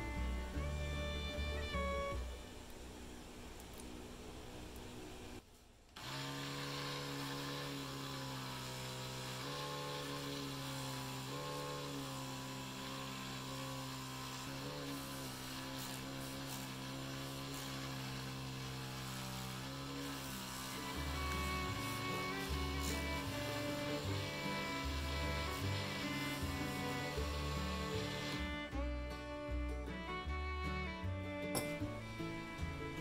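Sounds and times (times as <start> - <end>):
lathe motor humming: 6.0 - 28.7.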